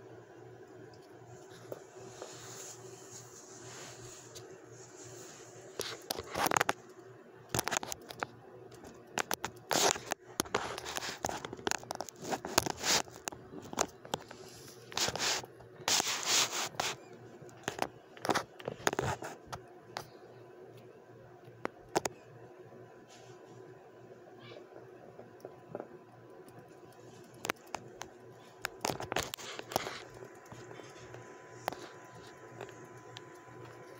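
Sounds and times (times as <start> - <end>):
rat claws scratching fabric: 1.3 - 6.8, 8.9 - 19.6, 26.4 - 33.9.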